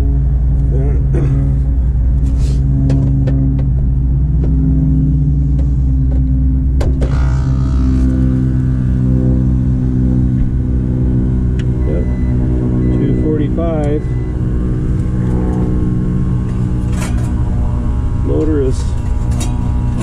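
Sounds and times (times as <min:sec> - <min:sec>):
air conditioner humming: 0:11.8 - 0:20.0.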